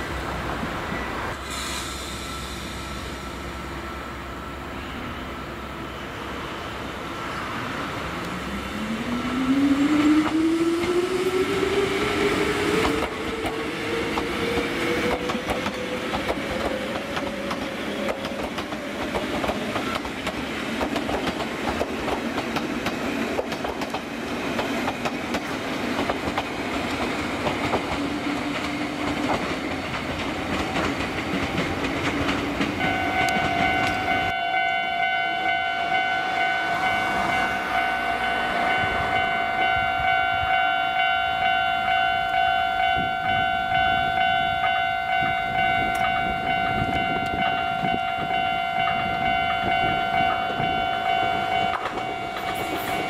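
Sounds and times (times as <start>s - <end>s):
electric train running past: 0.0s - 53.0s
level crossing alarm ringing: 32.8s - 53.0s.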